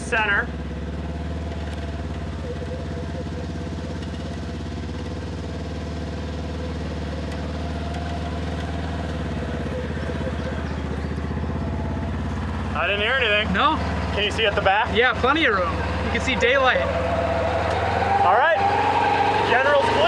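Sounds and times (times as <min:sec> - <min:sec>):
vehicle engine idling: 0:00.0 - 0:20.0.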